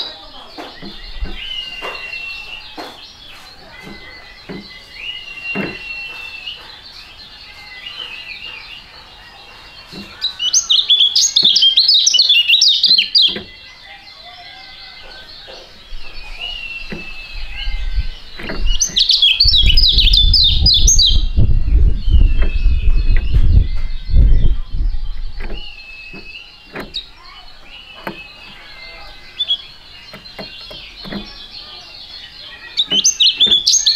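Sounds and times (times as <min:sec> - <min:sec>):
bird chirping and twittering: 0:00.0 - 0:33.9
low rumble: 0:16.0 - 0:26.5.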